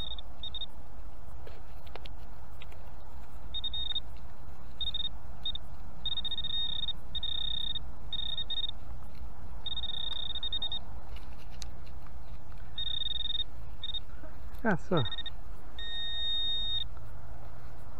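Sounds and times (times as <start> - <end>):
metal detector beeps: 0.0 - 0.8, 3.5 - 4.1, 4.7 - 8.8, 9.6 - 10.9, 12.8 - 14.1, 15.0 - 16.9.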